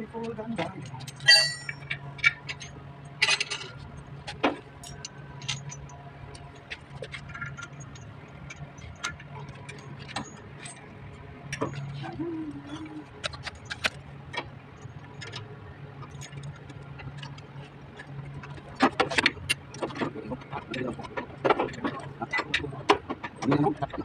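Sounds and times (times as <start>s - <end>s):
steady low hum: 0.0s - 24.0s
metal bolts clinking on valve: 1.1s - 3.7s.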